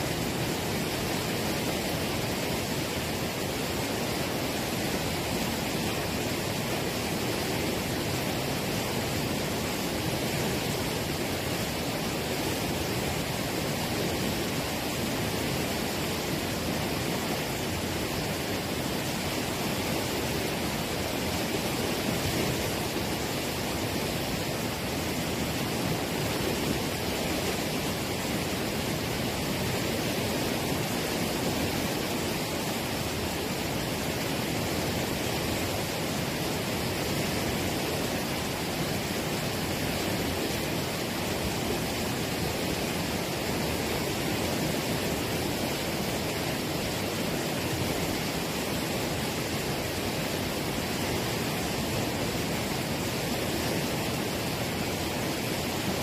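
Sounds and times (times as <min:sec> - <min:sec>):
water rushing over rocks: 0:00.0 - 0:56.0.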